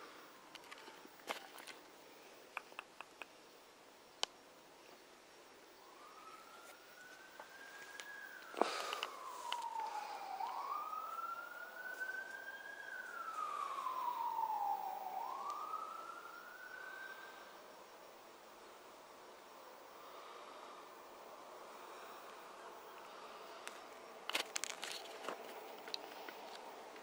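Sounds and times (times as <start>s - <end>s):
siren wailing: 5.8s - 17.8s.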